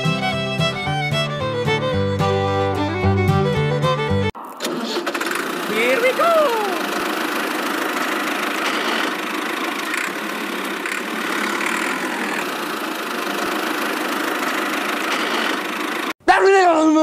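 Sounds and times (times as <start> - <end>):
toy tractor running on sand: 4.6 - 16.1.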